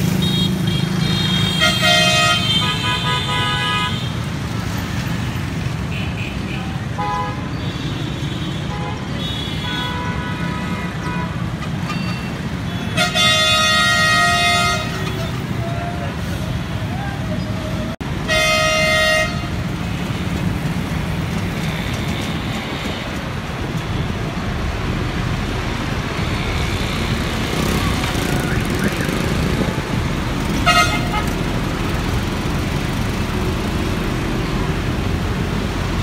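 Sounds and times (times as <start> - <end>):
road traffic: 0.0 - 36.0
vehicle horn: 0.2 - 4.2, 12.7 - 15.4, 18.2 - 19.6, 30.6 - 31.4.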